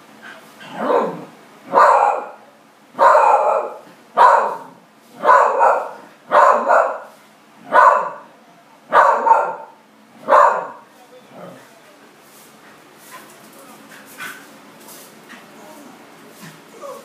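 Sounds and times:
dog barking: 0.8s - 2.4s, 3.0s - 7.1s, 7.7s - 8.3s, 8.9s - 10.9s.

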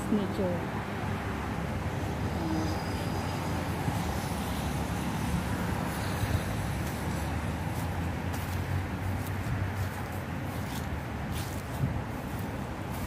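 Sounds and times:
wind buffeting microphone: 3.8s - 13.0s.

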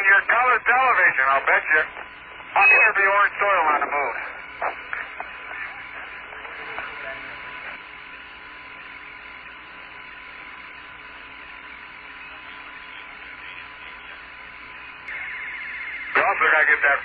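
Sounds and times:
radio hiss and hum: 0.0s - 17.0s
rapidly pulsing buzz: 0.0s - 17.0s.

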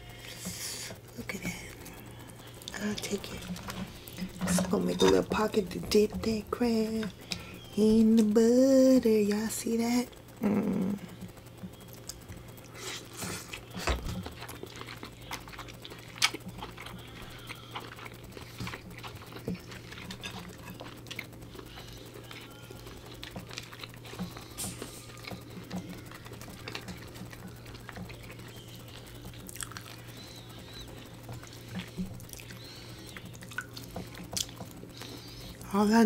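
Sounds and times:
chewing: 0.1s - 6.4s, 10.1s - 35.7s
crab shell clicking and crackling: 11.1s - 35.7s.

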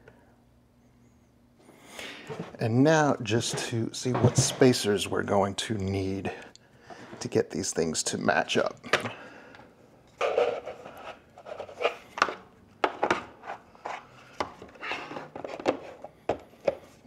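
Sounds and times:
scraping rub: 10.2s - 12.1s.

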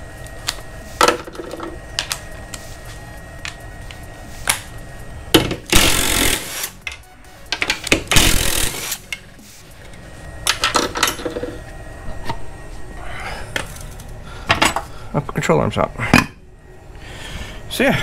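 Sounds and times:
cordless power tool spinning: 5.6s - 6.8s, 8.1s - 9.1s.

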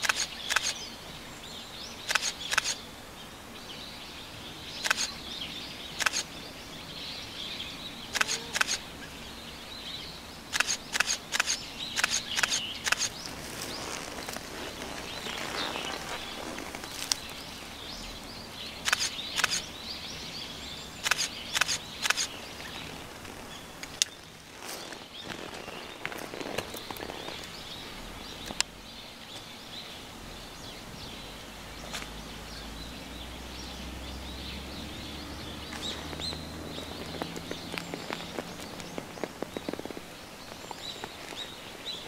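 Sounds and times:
camera shutters clicking: 0.0s - 0.8s, 2.1s - 2.8s, 4.8s - 5.2s, 6.0s - 6.3s, 8.2s - 8.8s, 10.5s - 13.2s, 18.8s - 19.7s, 21.0s - 22.3s
steady outdoor hiss: 0.0s - 42.0s.

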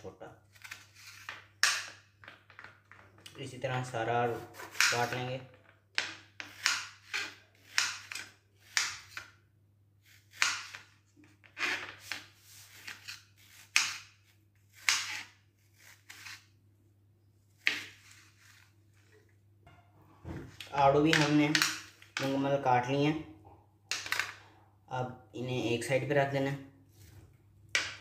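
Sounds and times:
knife chopping fruit on tray: 5.9s - 9.4s, 10.1s - 10.9s, 11.7s - 16.3s, 17.6s - 18.1s.

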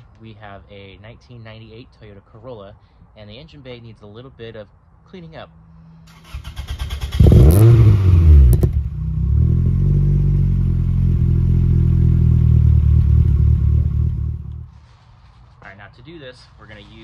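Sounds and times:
car engine cranking and revving: 6.1s - 14.7s.

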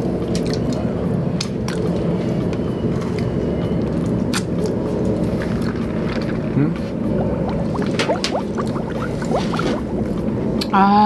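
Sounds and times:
steady low rumble: 4.7s - 10.8s.

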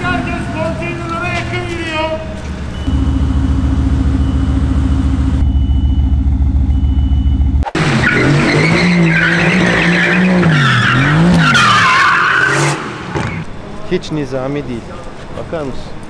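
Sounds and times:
car engine revving: 7.5s - 13.5s
tyres squealing: 7.8s - 13.5s.

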